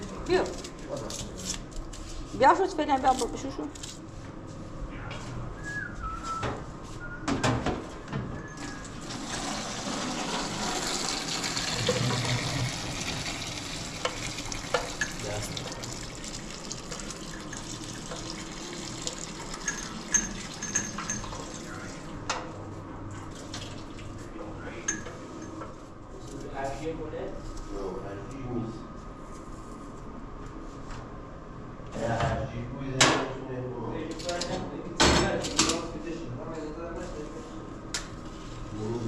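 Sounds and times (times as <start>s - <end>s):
tap water running into steel sink: 9.0s - 21.6s
metal pot and dishes clinking: 19.6s - 21.4s.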